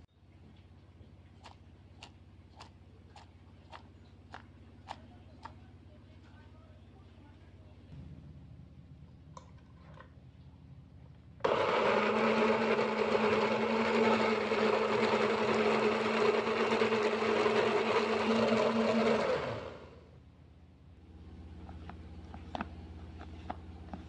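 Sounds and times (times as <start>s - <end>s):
electric blender motor running: 11.4s - 20.0s.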